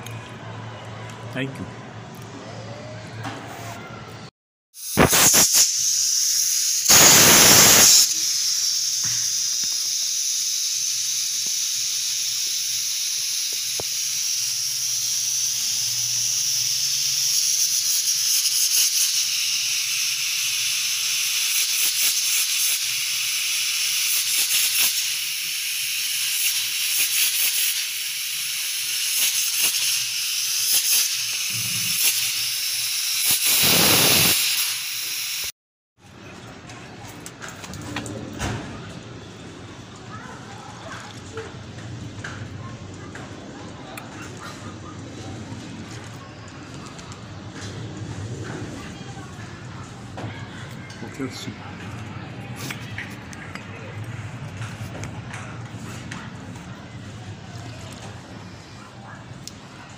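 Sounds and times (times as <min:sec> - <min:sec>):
loud rush of steam: 0:04.8 - 0:35.5
pressure cooker steam hissing: 0:04.8 - 0:35.5.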